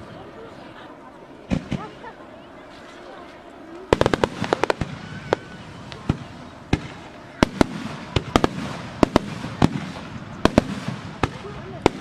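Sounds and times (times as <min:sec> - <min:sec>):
fireworks bangs: 0:01.4 - 0:02.2, 0:03.9 - 0:12.0.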